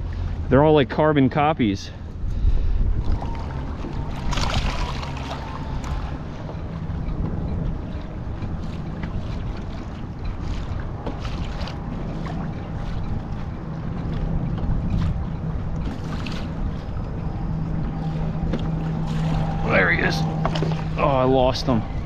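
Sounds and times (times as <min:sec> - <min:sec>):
low hum: 0:00.0 - 0:22.0
water lapping against hull: 0:00.0 - 0:22.0
wind buffeting microphone: 0:00.0 - 0:22.0
short splashes: 0:02.4 - 0:07.2, 0:07.8 - 0:22.0.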